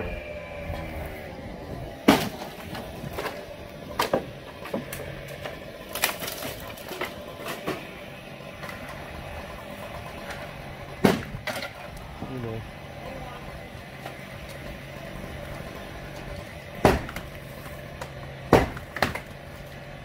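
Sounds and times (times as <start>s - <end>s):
engine running: 0.0s - 20.0s
structure cracking and crashing: 2.0s - 8.0s.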